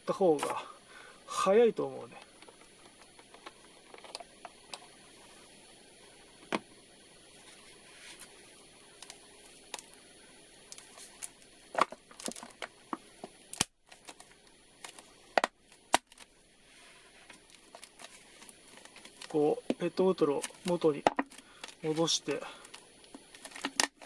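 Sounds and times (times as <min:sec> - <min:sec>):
plastic bottle crackling: 0:02.3 - 0:04.8, 0:10.7 - 0:16.3, 0:17.2 - 0:24.0.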